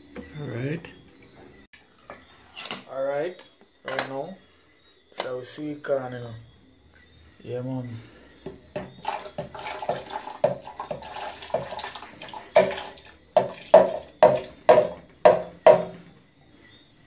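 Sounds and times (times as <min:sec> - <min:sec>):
corn and liquid pouring into blender: 0:09.0 - 0:14.6.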